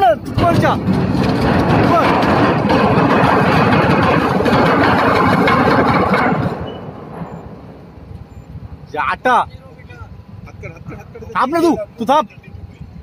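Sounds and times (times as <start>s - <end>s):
steel hull grinding on concrete: 0.2s - 7.8s.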